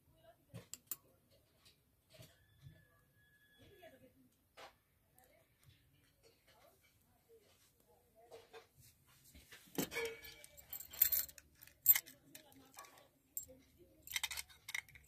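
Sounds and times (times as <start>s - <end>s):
padlock clicking and clinking: 0.8s - 1.0s, 9.8s - 15.0s.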